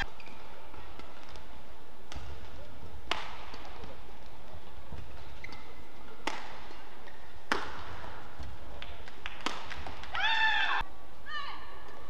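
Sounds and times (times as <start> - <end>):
racket hitting shuttlecock: 2.1 - 4.0, 5.0 - 10.2.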